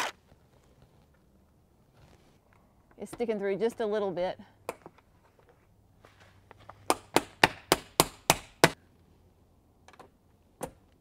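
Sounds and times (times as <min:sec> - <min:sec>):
hammer striking metal frame: 0:06.9 - 0:08.8.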